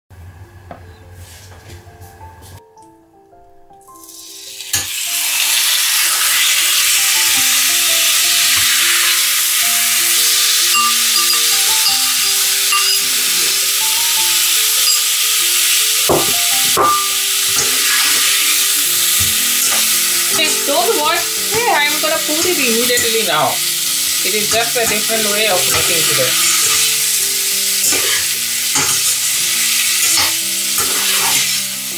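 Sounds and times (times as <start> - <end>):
chicken sizzling in hot oil: 3.9 - 31.9
spatula knocking on pan: 16.0 - 17.8.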